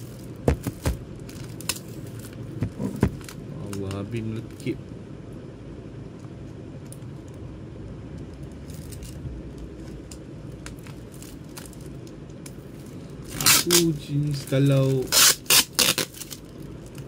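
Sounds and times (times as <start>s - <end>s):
plastic shrink-wrap crinkling: 0.0s - 4.8s, 8.4s - 17.0s
steady low hum: 0.0s - 17.0s.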